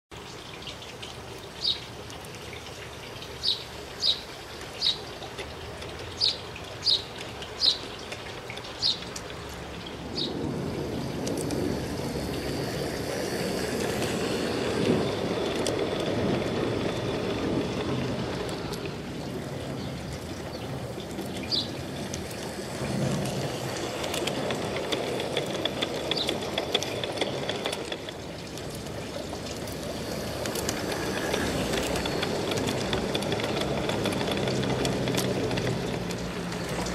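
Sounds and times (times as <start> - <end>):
model train wheels rumbling on rails: 2.7 - 36.9
light clicks of track: 4.6 - 9.7, 11.2 - 11.7, 13.3 - 19.0, 20.9 - 36.9.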